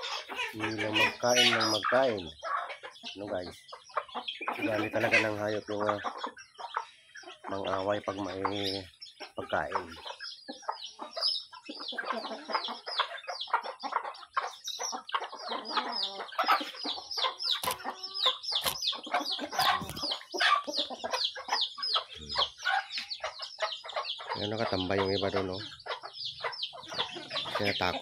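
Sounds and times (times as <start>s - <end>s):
chicks peeping: 0.0s - 28.0s
hens clucking: 0.0s - 28.0s.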